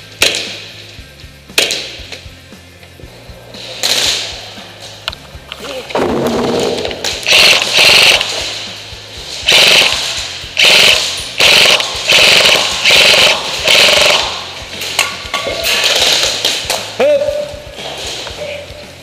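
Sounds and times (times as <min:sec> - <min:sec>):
airsoft rifle full-auto bursts: 0:07.2 - 0:08.4, 0:09.4 - 0:14.5.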